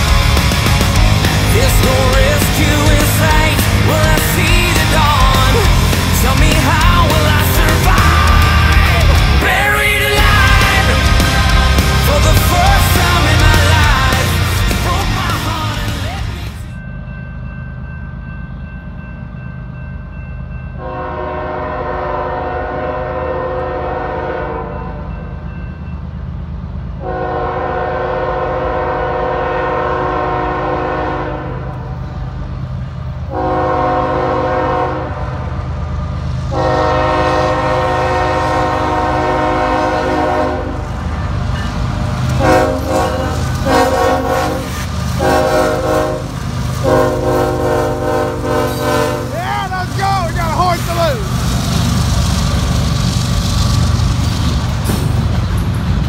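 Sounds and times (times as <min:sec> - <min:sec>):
low rumble of train engine: 0:00.0 - 0:56.0
locomotive air horn blasts: 0:20.8 - 0:25.1, 0:27.0 - 0:32.0, 0:33.3 - 0:35.5, 0:36.5 - 0:41.0, 0:42.4 - 0:49.4.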